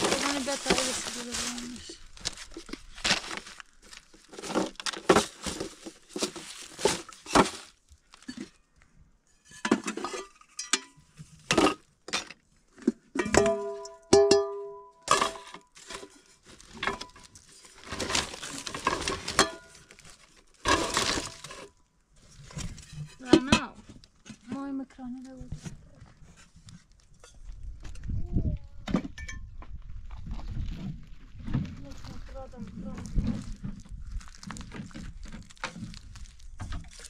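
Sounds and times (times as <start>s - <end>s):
hard objects knocking and scraping: 0.0s - 8.6s, 22.4s - 24.8s.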